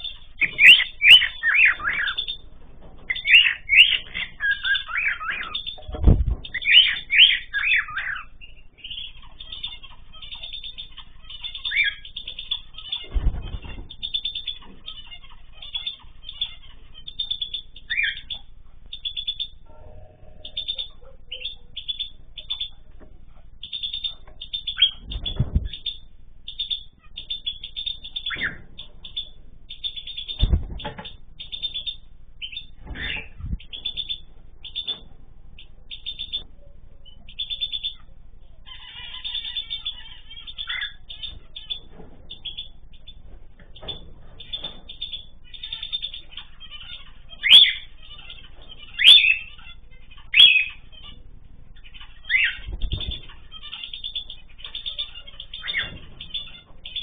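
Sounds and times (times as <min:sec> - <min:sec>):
birds chirping: 0:00.0 - 0:57.0
wings flapping thuds: 0:05.8 - 0:06.8, 0:13.0 - 0:14.1, 0:25.0 - 0:25.8, 0:30.4 - 0:31.2, 0:52.6 - 0:53.4.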